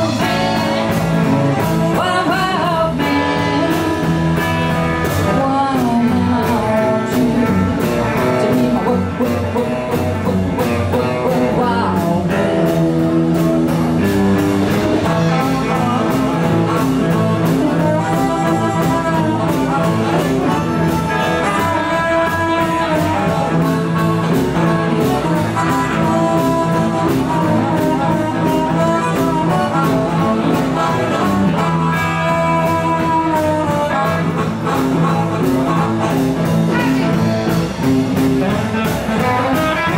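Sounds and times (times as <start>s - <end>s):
woman singing: 0.0s - 10.0s, 10.9s - 14.1s, 15.0s - 20.6s
live blues band: 0.0s - 39.9s
harmonica: 14.0s - 39.9s.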